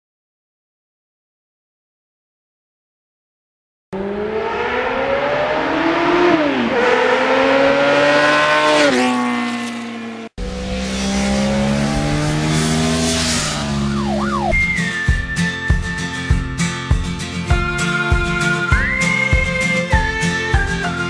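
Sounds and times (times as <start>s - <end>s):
engine accelerating through gears: 4.0s - 14.6s
steady engine note rising: 4.0s - 16.6s.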